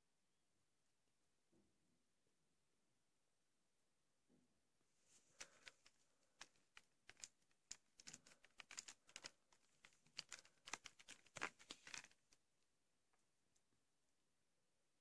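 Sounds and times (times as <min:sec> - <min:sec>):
plastic case clicking and crackling: 0:05.4 - 0:12.3.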